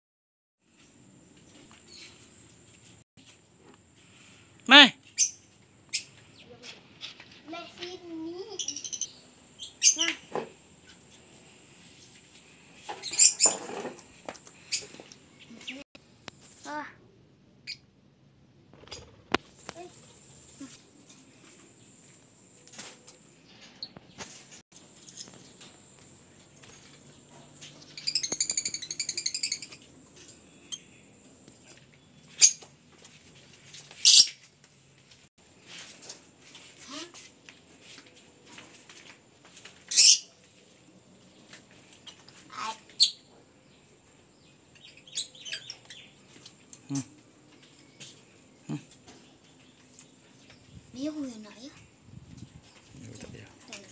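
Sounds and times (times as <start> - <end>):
lovebirds chirping: 5.1 - 6.6, 8.3 - 13.7, 27.0 - 32.7, 41.3 - 52.0.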